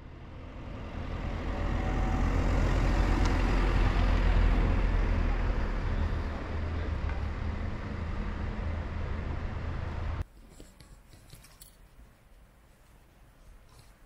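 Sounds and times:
vehicle engine humming: 0:00.0 - 0:10.3
road noise: 0:00.0 - 0:10.4.

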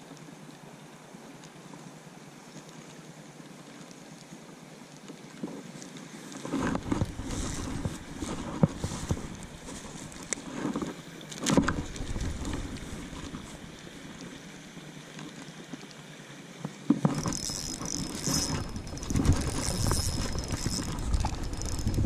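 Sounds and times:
water splashing: 0:05.6 - 0:22.0
fishing reel ratcheting whir: 0:06.8 - 0:09.4, 0:17.0 - 0:22.0.

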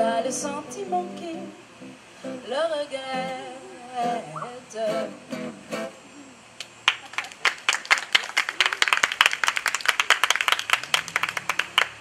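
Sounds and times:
small audience applauding: 0:06.8 - 0:12.0.

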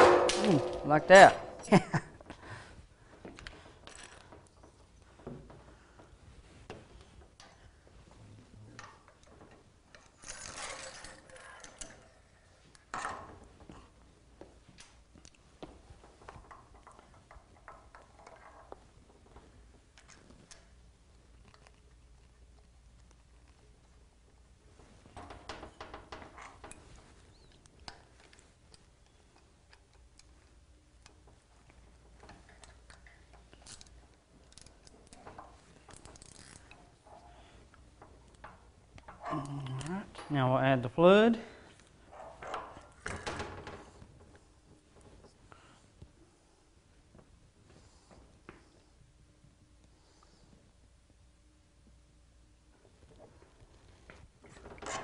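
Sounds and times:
loud metal clatter: 0:00.0 - 0:01.8
metal parts scraping and rattling: 0:08.8 - 0:13.1, 0:32.0 - 0:37.7.

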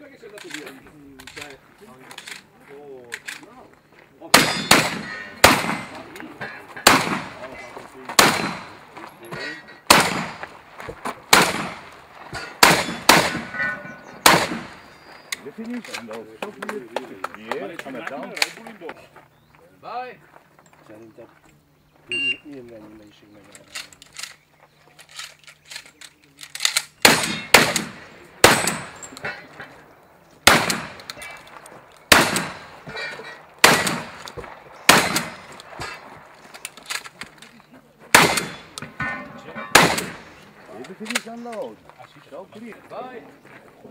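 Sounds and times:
shotgun shots: 0:04.3 - 0:06.2, 0:06.8 - 0:08.9, 0:09.9 - 0:10.6, 0:11.3 - 0:14.9, 0:26.7 - 0:29.2, 0:30.4 - 0:31.4, 0:32.1 - 0:33.0, 0:33.6 - 0:36.1, 0:38.1 - 0:40.4.

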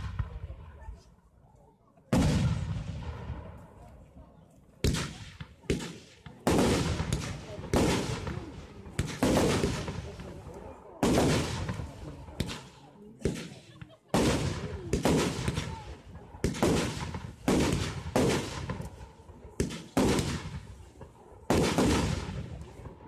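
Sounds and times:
fireworks bursting: 0:04.8 - 0:23.0.

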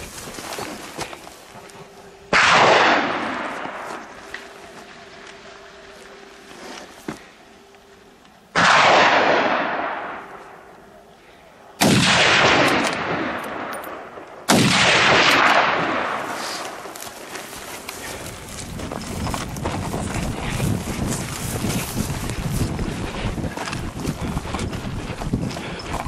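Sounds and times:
gunshots with long echo: 0:02.3 - 0:04.2, 0:08.5 - 0:10.7, 0:11.8 - 0:16.9.

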